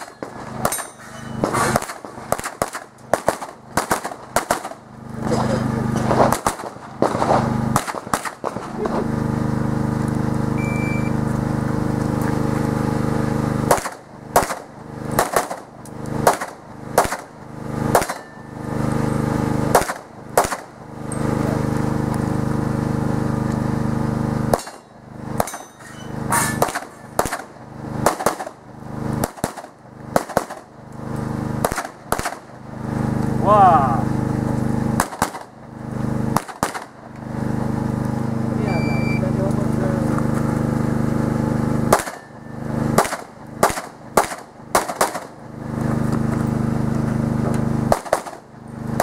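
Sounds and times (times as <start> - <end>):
rapid pistol fire: 0.0 - 5.4, 6.0 - 9.0, 13.6 - 18.4, 19.6 - 21.0, 24.5 - 25.7, 26.6 - 30.8, 31.6 - 32.6, 34.9 - 35.6, 36.2 - 37.0, 41.8 - 45.5, 47.8 - 49.0.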